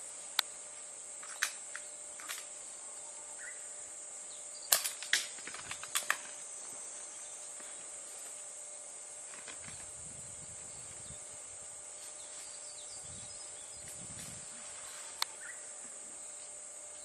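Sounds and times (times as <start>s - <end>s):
high-pitched insect drone: 0.0s - 17.0s
sharp clicks and snaps: 1.2s - 2.5s, 4.7s - 6.3s.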